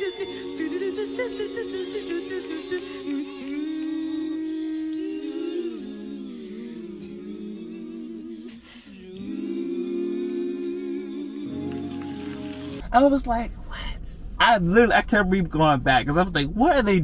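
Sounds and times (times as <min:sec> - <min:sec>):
women singing in harmony: 0:00.0 - 0:12.8.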